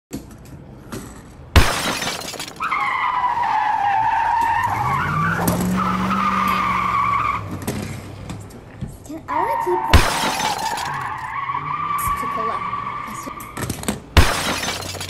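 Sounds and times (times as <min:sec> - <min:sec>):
tyre screech: 0:02.6 - 0:08.1, 0:09.3 - 0:13.8
engine revving: 0:04.1 - 0:08.6.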